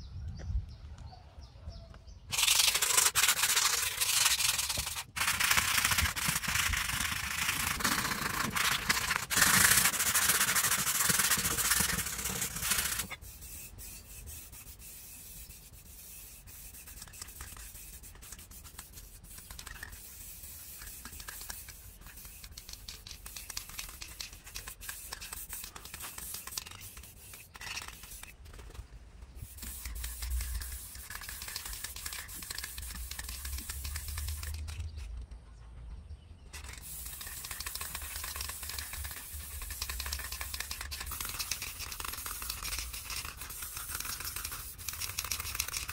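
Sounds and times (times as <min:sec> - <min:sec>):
sandpaper rubbing metal: 0:02.3 - 0:28.7, 0:29.4 - 0:35.0, 0:36.6 - 0:45.9.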